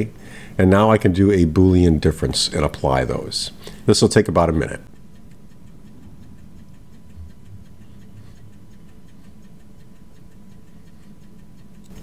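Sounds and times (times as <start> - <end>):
faint regular ticking: 0.0 - 12.0
low hum: 4.6 - 12.0.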